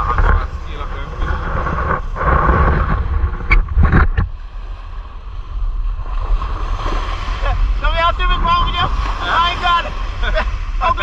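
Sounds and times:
sharp knocks or scrapes: 0.0 - 4.4
wind on microphone: 0.0 - 11.0
waves on a pebble beach: 4.4 - 11.0.

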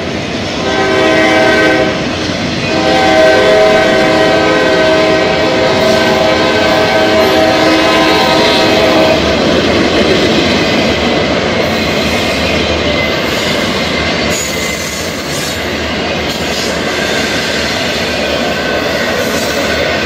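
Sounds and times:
freight train rolling past: 0.0 - 20.0
locomotive air horn: 0.6 - 2.0, 2.7 - 9.2.

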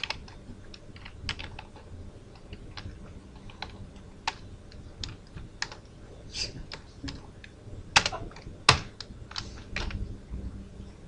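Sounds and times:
typing on computer keyboard: 0.0 - 4.4, 5.0 - 5.9.

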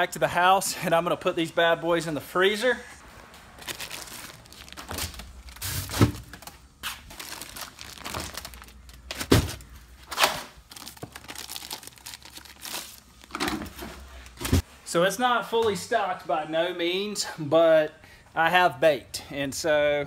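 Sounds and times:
plastic bags crinkling: 3.4 - 14.4.

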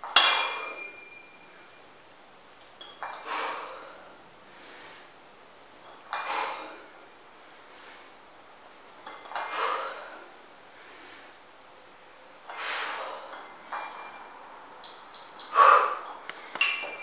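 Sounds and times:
high electronic beep: 14.8 - 16.0
woman exhaling forcefully: 15.6 - 16.0.

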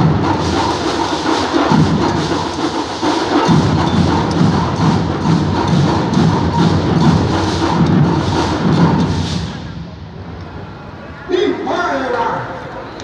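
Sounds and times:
deep drum strokes: 0.0 - 10.3.

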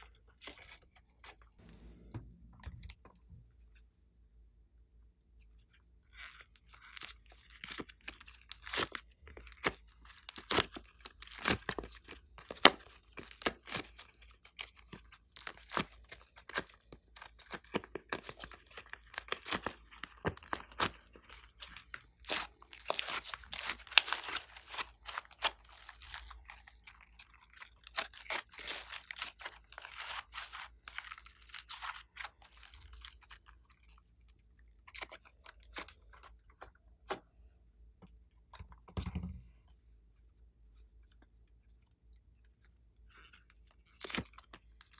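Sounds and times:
sticky slime crackles and pops: 7.0 - 33.5.

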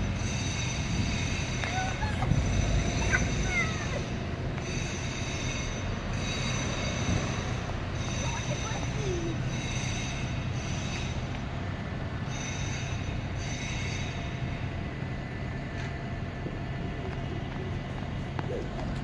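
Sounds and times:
high metallic squeal: 0.0 - 11.4, 12.2 - 14.8
bus engine hum: 0.0 - 19.0.

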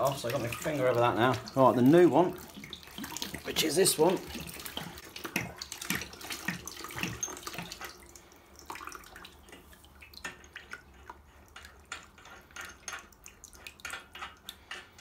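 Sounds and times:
water trickling and splashing: 0.0 - 15.0.

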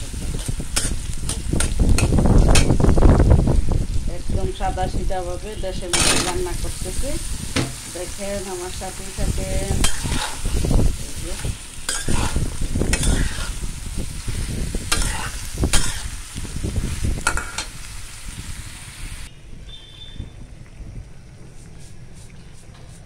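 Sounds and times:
frying in oil: 0.0 - 23.0
metal spatula scraping a pan: 9.7 - 10.7, 11.4 - 13.6, 14.9 - 16.2.

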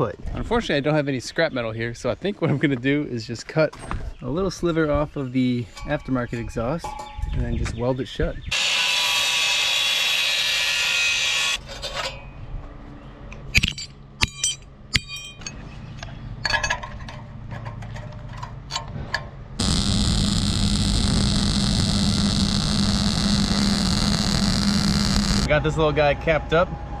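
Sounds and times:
angle grinder cutting steel: 8.5 - 11.6, 19.6 - 25.5
welder buzzing: 8.5 - 11.6, 19.6 - 25.5
hammer striking steel: 13.6 - 15.5.

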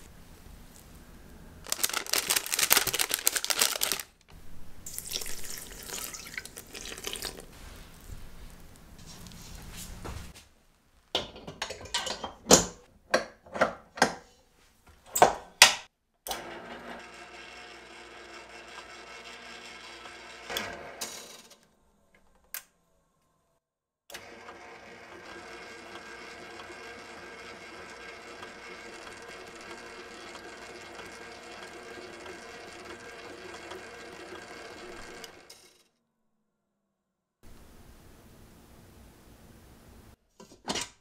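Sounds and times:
stand mixer motor running: 16.4 - 21.0, 24.1 - 35.8.

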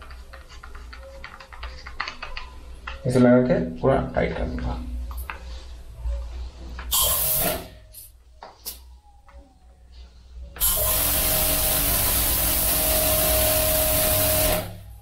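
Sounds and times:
high-pressure water hissing: 6.9 - 7.6, 10.6 - 14.8.

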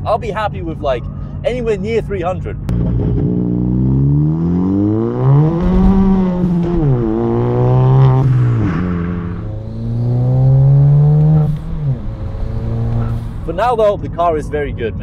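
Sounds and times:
car engine accelerating: 2.7 - 13.7.

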